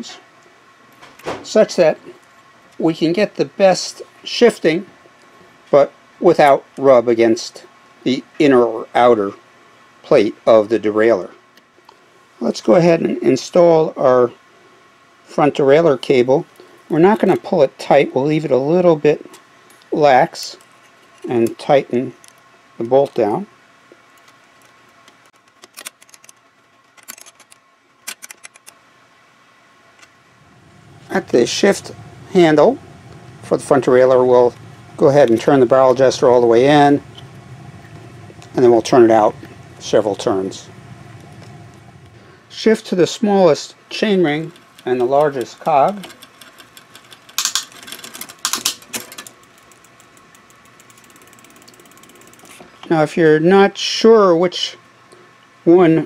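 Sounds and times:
bicycle gears shifting clatter: 30.4s - 42.6s, 43.9s - 52.8s
bicycle freewheel ticking: 30.5s - 42.4s, 44.3s - 52.6s.

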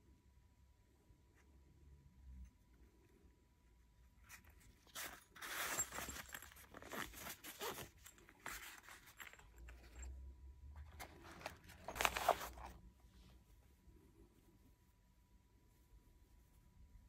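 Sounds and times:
cloth rustling: 4.2s - 10.2s, 10.8s - 16.9s
metal scraping into fabric sleeve: 4.2s - 10.2s, 10.8s - 13.4s.

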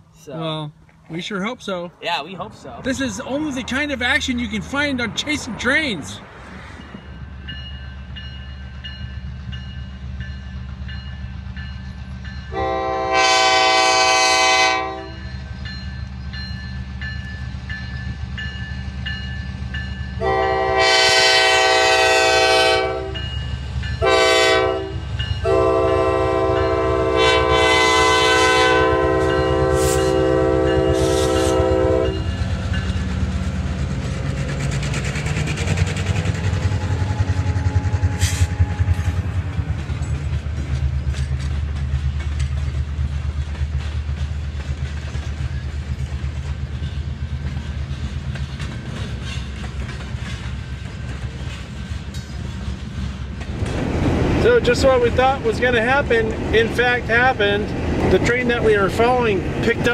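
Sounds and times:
diesel locomotive engines rumbling: 0.0s - 59.9s
train air horn blasts: 12.5s - 15.4s, 20.2s - 23.3s, 24.0s - 32.4s, 36.7s - 39.2s
freight cars rattling: 32.1s - 59.9s.

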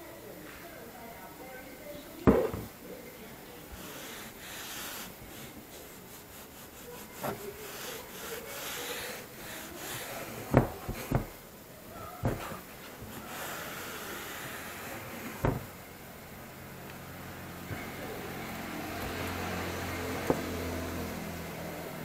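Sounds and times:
blade knocking on tiles: 2.3s - 2.7s, 9.9s - 11.4s, 15.3s - 15.7s, 20.2s - 20.6s.

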